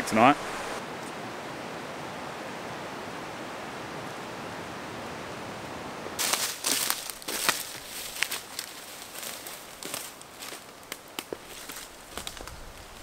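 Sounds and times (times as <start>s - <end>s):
creek flowing: 0.0s - 10.9s
crunching footsteps: 6.2s - 13.0s
rustling through dry grass: 6.2s - 13.0s.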